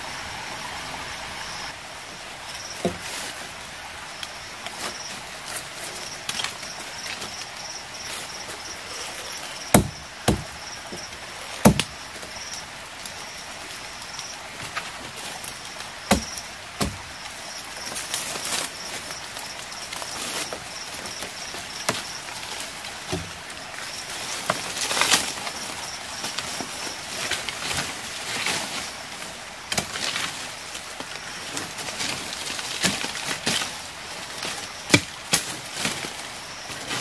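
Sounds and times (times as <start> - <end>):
insects chirping: 0.0 - 37.0
blade chopping into wood: 9.8 - 10.5, 11.6 - 11.9.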